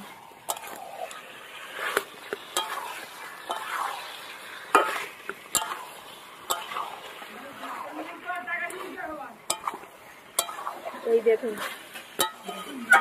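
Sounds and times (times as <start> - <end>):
spatula scraping a pan: 0.0 - 13.0
spice paste sizzling: 0.0 - 13.0.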